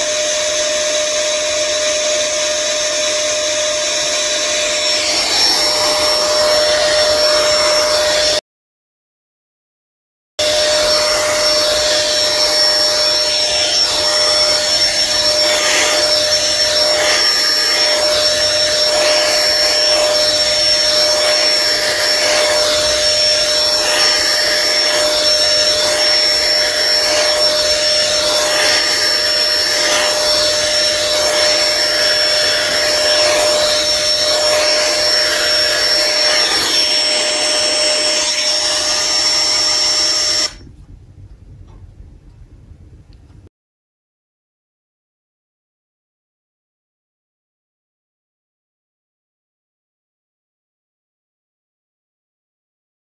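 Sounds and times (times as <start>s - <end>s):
appliance motor whining: 0.0s - 8.4s, 10.4s - 40.8s.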